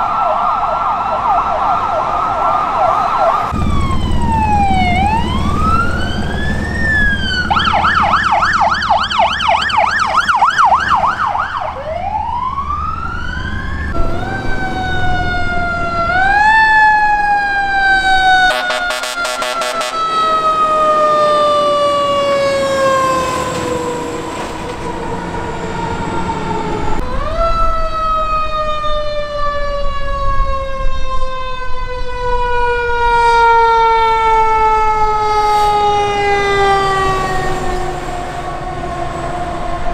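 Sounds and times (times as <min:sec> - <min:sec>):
mechanical fire truck siren: 0:00.0 - 0:39.9
electronic siren wailing and yelping: 0:00.9 - 0:22.8
low engine rumble: 0:03.5 - 0:09.5.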